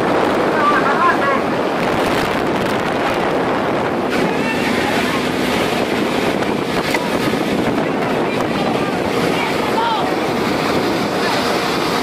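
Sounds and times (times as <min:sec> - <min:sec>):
fishing boat working noise: 0:00.0 - 0:12.0
wind buffeting microphone: 0:00.0 - 0:12.0.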